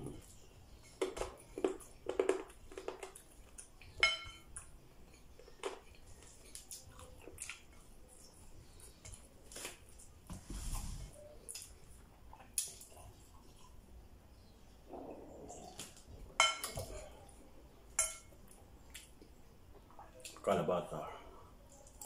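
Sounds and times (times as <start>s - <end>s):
chewing and lip smacks: 1.4s - 10.0s, 11.4s - 13.9s, 18.4s - 20.4s.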